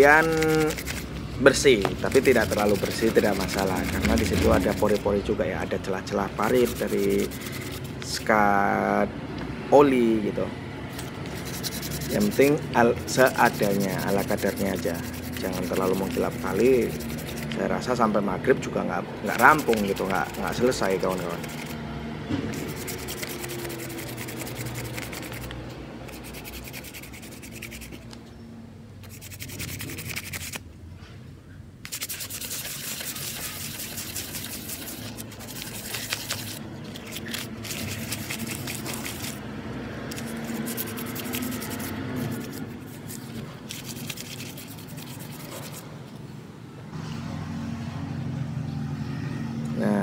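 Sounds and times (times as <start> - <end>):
cloth rubbing metal piston: 0.0 - 5.2, 6.4 - 8.2, 11.0 - 17.6, 19.3 - 21.8, 22.5 - 28.0, 29.0 - 30.6, 31.9 - 39.4, 40.1 - 45.8.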